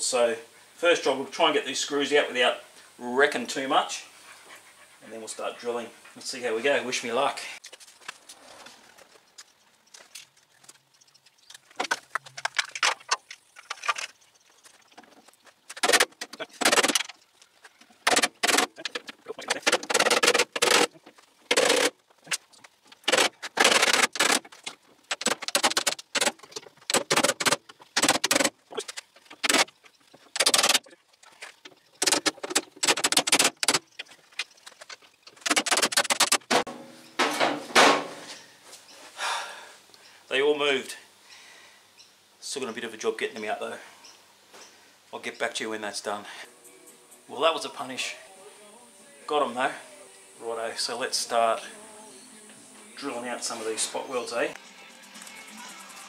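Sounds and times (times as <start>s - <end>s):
rapid metallic impacts: 18.0s - 38.2s.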